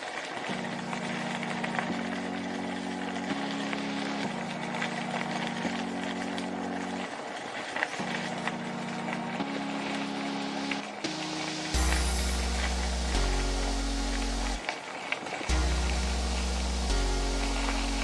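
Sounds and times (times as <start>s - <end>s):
steady hiss: 0.0s - 18.0s
sustained low music chords: 8.0s - 14.6s, 15.5s - 18.0s.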